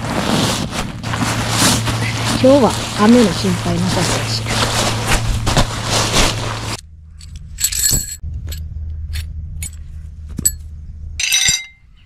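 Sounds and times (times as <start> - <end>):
nylon tarp rustling: 0.0 - 6.8
metal tent pegs clinking: 0.6 - 9.8, 10.4 - 11.9.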